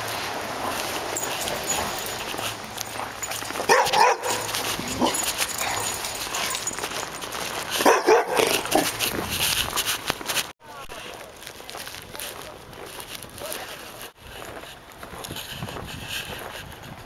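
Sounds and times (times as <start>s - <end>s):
dog barking: 3.6s - 6.7s, 7.8s - 8.9s.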